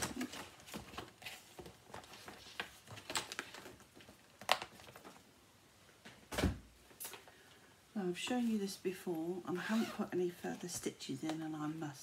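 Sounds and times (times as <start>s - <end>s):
rustling and tapping of fabric: 0.0s - 5.3s.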